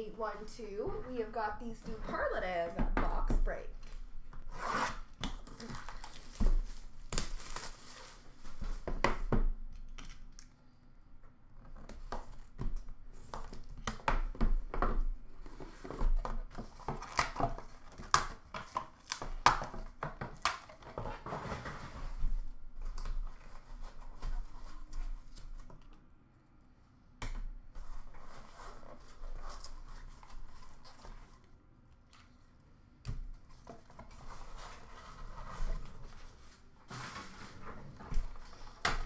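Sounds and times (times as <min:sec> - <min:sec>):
plastic wrap crinkling and tearing: 0:03.8 - 0:08.7.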